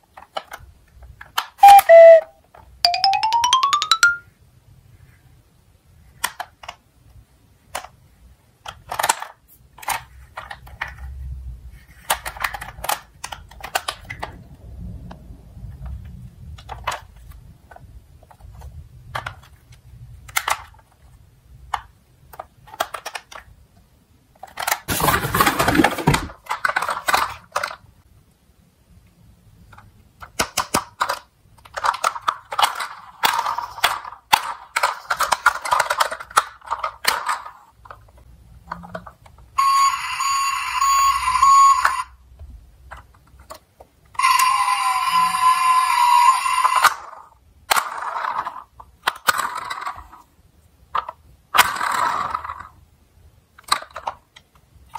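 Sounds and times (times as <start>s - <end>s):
toy electronic alarm sound effect: 1.6s - 2.3s, 2.9s - 4.2s, 39.6s - 42.1s, 44.2s - 47.0s
plastic toys clattering in a box: 12.0s - 14.4s, 24.4s - 27.8s, 29.7s - 38.1s.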